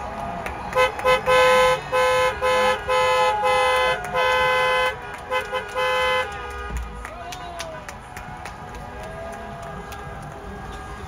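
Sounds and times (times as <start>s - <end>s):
car horn honking: 0.7s - 7.0s.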